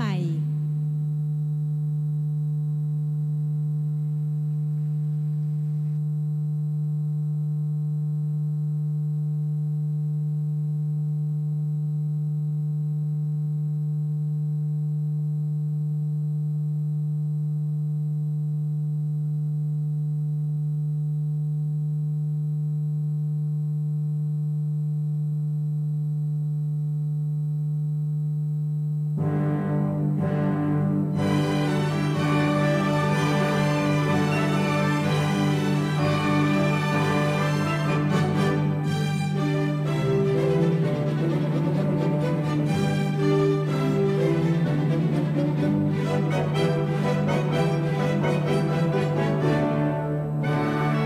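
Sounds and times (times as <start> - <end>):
low electrical hum: 0.0 - 29.2.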